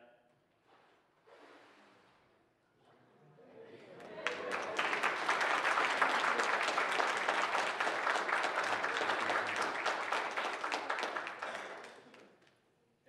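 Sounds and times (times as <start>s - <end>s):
congregation applauding: 3.8s - 12.5s.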